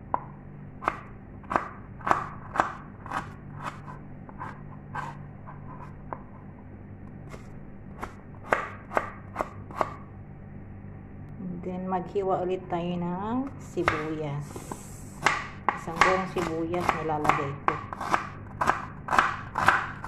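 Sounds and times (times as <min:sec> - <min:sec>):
knife chopping on plastic board: 0:00.8 - 0:05.1, 0:07.3 - 0:10.0, 0:13.8 - 0:14.1, 0:15.2 - 0:20.0.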